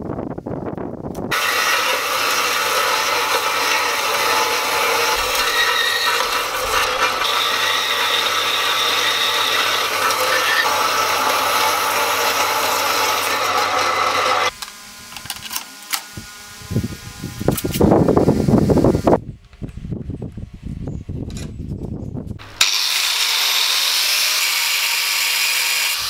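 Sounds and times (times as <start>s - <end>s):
knocks and scraping of steel: 1.3s - 14.2s
bandsaw cutting metal: 1.3s - 16.2s, 22.4s - 26.0s.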